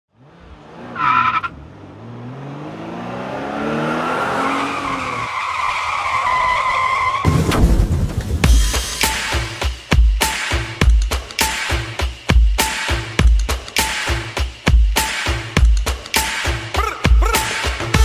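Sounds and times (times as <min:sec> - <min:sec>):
car engine revving: 0:00.1 - 0:06.0
loud music with heavy beat: 0:08.4 - 0:18.0.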